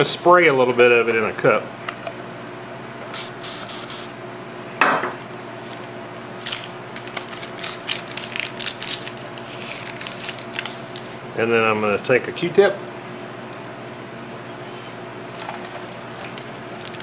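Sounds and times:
aerosol spray hiss: 3.2s - 4.1s.

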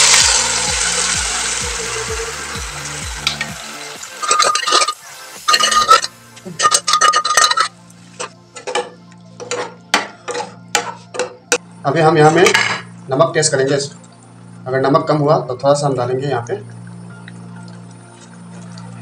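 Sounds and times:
liquid sizzling in hot pan: 0.0s - 7.8s
metal ladle scraping pan: 4.1s - 11.4s.

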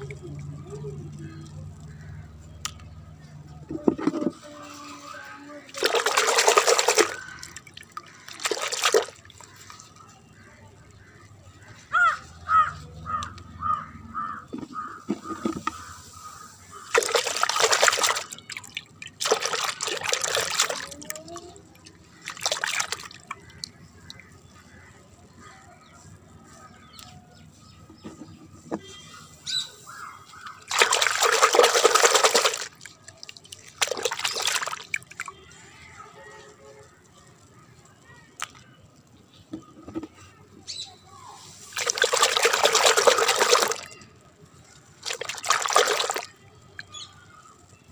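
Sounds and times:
hands scrubbing plastic toys: 3.8s - 10.0s, 14.5s - 24.2s, 30.2s - 35.3s, 41.4s - 44.0s, 44.7s - 46.4s
water sloshing in plastic bucket: 5.6s - 11.1s, 14.4s - 24.8s, 30.3s - 35.5s, 41.7s - 44.1s, 45.0s - 47.1s.

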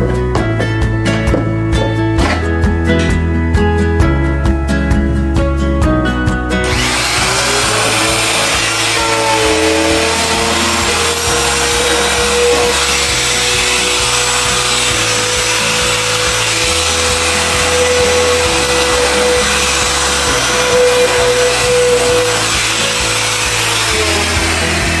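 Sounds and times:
router cutting wood hiss: 6.6s - 25.0s
trim router whining: 6.6s - 25.0s.

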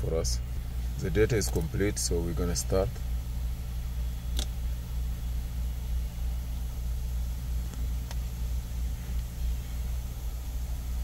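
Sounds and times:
low rumble of running machinery: 0.0s - 11.0s
sharp click: 4.3s - 4.6s.

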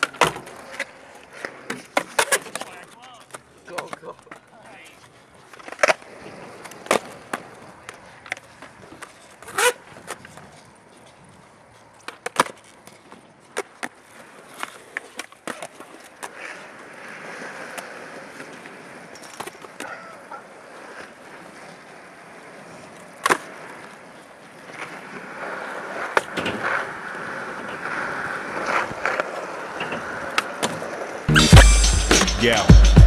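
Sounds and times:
skateboard hitting the ground: 0.0s - 4.4s, 5.5s - 10.6s, 12.0s - 21.8s, 22.5s - 31.2s
skateboard wheels rolling on concrete: 0.0s - 33.0s.

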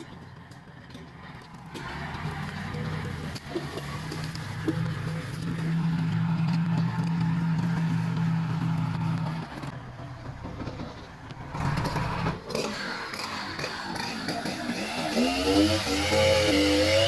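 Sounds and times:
engine running: 0.0s - 17.0s.

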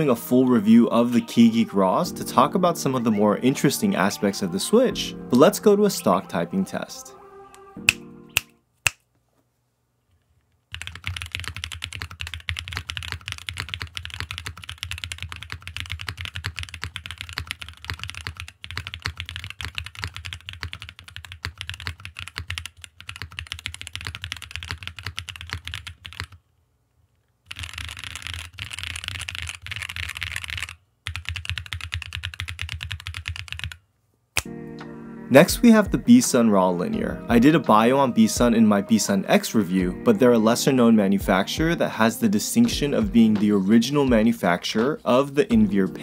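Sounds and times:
mechanical keyboard typing: 10.7s - 26.4s, 27.5s - 33.8s.

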